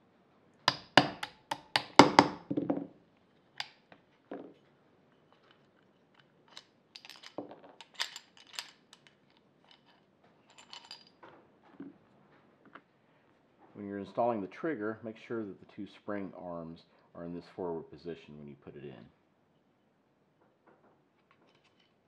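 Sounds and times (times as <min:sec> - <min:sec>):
hammer tapping on steel punch: 0:00.7 - 0:02.4
light metallic clicks and rattles: 0:05.3 - 0:11.4, 0:21.2 - 0:22.0.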